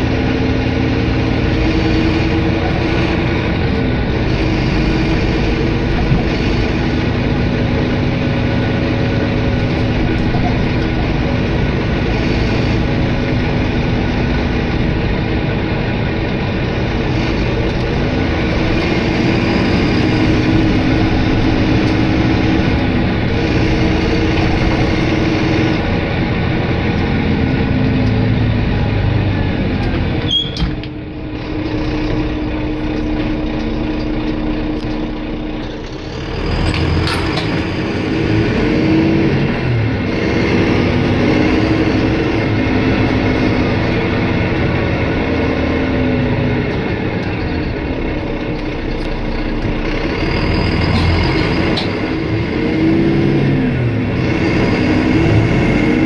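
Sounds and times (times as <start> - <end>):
diesel engine changing gear: 0.0 - 56.0
road noise: 0.0 - 56.0.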